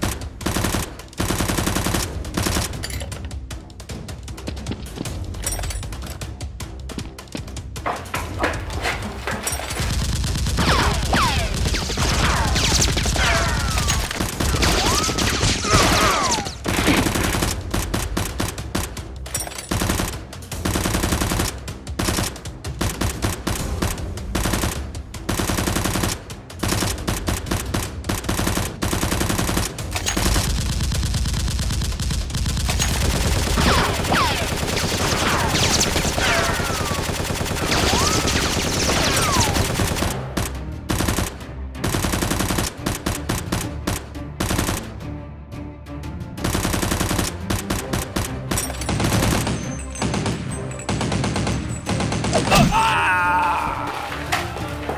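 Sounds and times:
machine gun fire: 0.0s - 2.8s, 9.8s - 18.9s, 19.7s - 43.7s.

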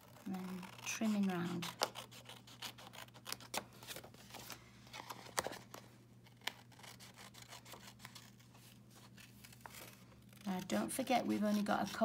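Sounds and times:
scissors snipping paper: 0.0s - 3.6s
paper handling: 0.0s - 12.0s.

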